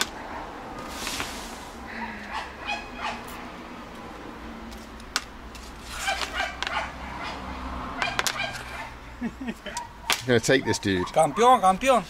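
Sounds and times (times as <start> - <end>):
small dog yapping: 2.0 - 3.4, 6.0 - 8.9.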